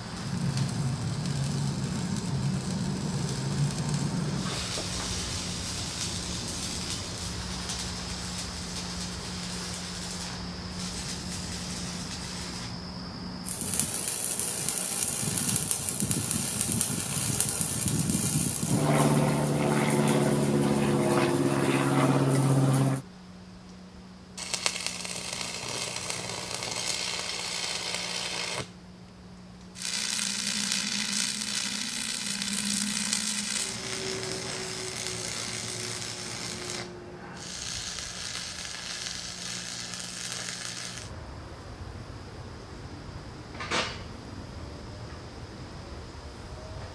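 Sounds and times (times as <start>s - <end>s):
crackling welding arc: 0.0s - 12.8s, 13.4s - 23.0s, 24.4s - 28.8s, 29.6s - 41.2s
humming tone: 13.5s - 23.0s, 29.8s - 40.6s.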